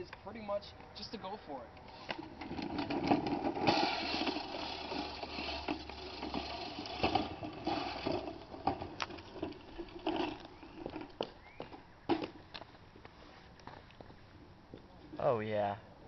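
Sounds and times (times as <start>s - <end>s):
reel mower blades clattering: 1.8s - 11.2s.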